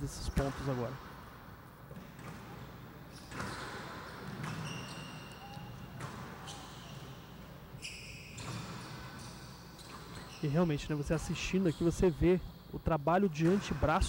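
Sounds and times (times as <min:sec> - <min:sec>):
shoes squeaking on court floor: 0:01.9 - 0:12.1.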